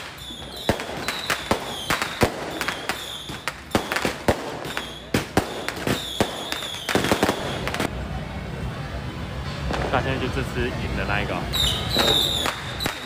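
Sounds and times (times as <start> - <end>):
firecrackers banging: 0.0 - 8.1, 9.4 - 13.0
high whistle-like tone: 0.1 - 3.5, 11.5 - 13.0.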